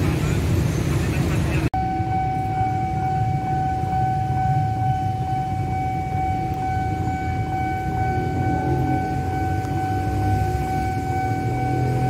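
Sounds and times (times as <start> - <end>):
level crossing alarm tone: 1.8 - 12.0.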